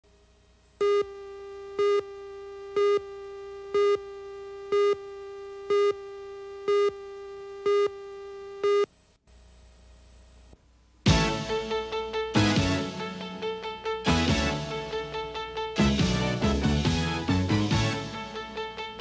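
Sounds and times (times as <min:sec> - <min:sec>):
faint hum: 0:00.0 - 0:11.1.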